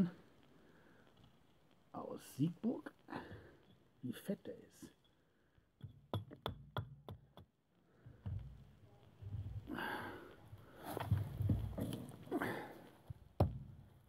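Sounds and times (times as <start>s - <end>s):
wood rustling and scraping: 10.6s - 12.3s.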